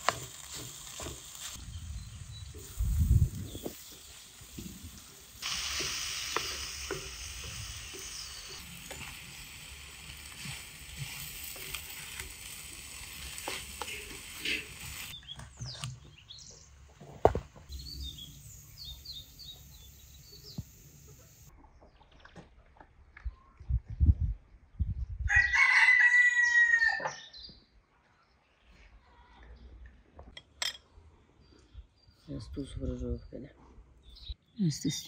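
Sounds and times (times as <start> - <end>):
food sizzling in frying pan: 0.0 - 15.2
spatula scraping and tapping pan: 13.2 - 15.8.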